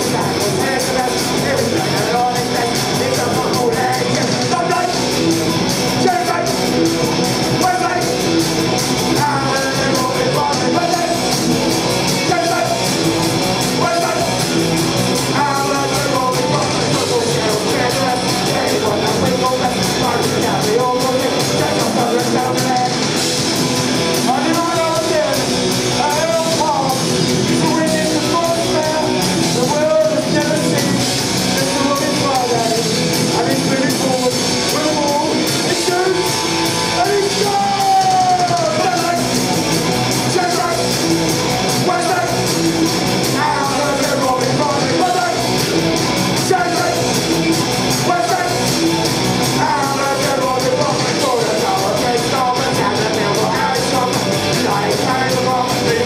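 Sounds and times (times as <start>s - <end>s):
punk rock band playing: 0.0s - 56.0s
person singing: 9.0s - 11.4s, 15.2s - 23.4s, 24.2s - 39.4s, 43.2s - 45.7s, 49.4s - 56.0s.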